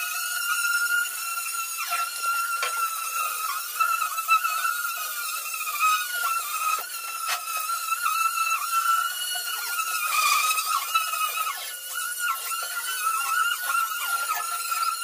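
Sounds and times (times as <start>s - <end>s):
angle grinder motor whine: 0.0s - 15.0s.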